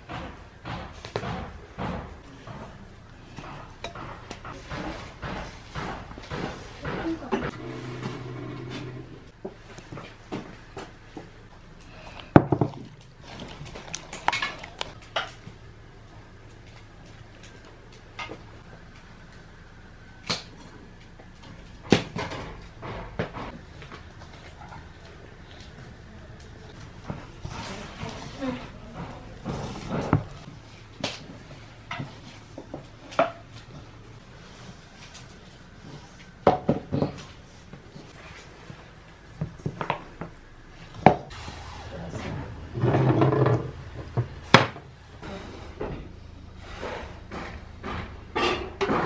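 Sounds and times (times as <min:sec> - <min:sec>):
utensils and dishes clattering: 0:47.4 - 0:49.0.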